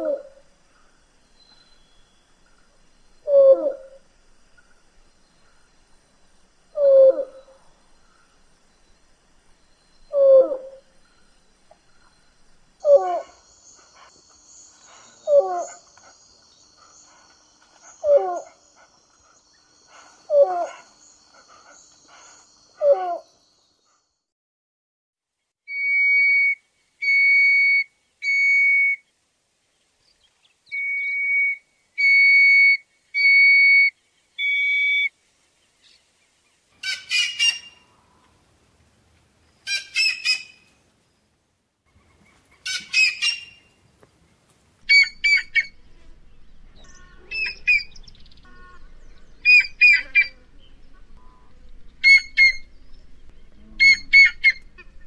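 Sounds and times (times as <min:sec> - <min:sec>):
heron whistling calls: 0:42.7 - 0:43.6, 0:44.9 - 0:45.8, 0:46.8 - 0:50.4, 0:51.3 - 0:52.7, 0:53.8 - 0:55.0
harsh rough bird calls: 0:44.9 - 0:55.0.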